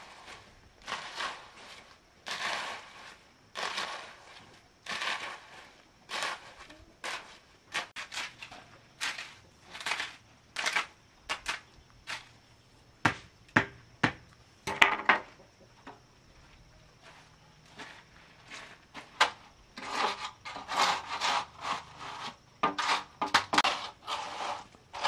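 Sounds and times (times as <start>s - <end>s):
hoe scraping wet concrete: 0.0s - 12.4s, 17.0s - 25.0s.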